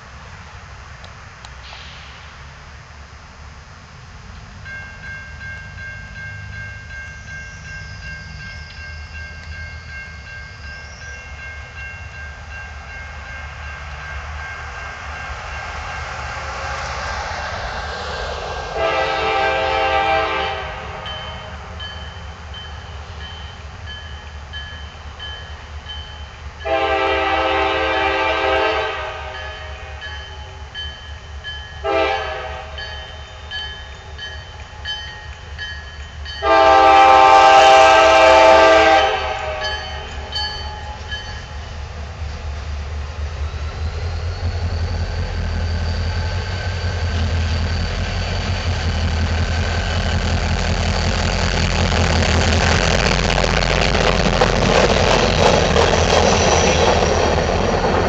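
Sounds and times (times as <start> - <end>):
diesel locomotive engine rumbling: 0.0 - 58.0
train air horn blasts: 18.7 - 21.6, 26.6 - 30.0, 31.8 - 32.9, 36.4 - 40.0.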